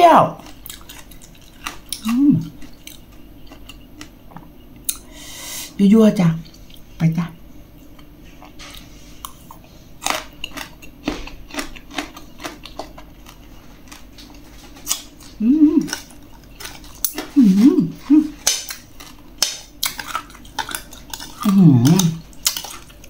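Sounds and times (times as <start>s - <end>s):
woman humming: 2.0s - 2.5s, 15.4s - 16.0s, 17.3s - 18.4s, 21.4s - 22.2s.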